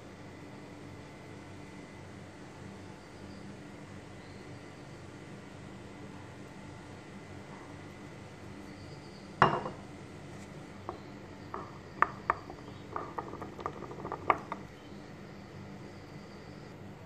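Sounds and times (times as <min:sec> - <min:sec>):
spoon knocking bowl: 0:09.4 - 0:09.8, 0:10.9 - 0:14.6.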